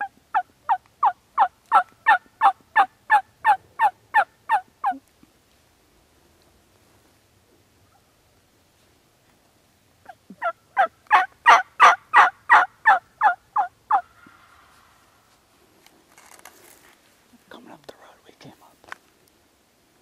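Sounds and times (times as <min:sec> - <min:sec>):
turkey yelps: 0:00.0 - 0:05.0, 0:10.4 - 0:14.2.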